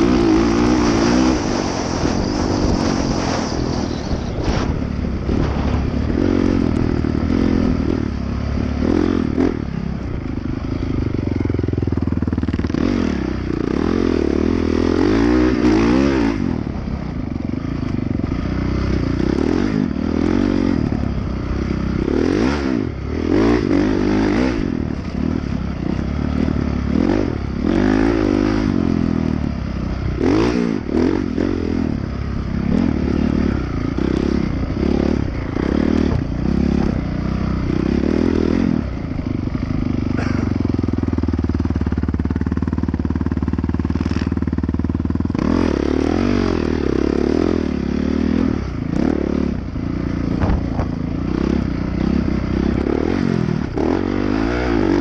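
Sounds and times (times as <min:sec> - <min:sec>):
dirt bike engine revving: 0:00.0 - 0:55.0
bike knocking over bumps: 0:50.4 - 0:51.0.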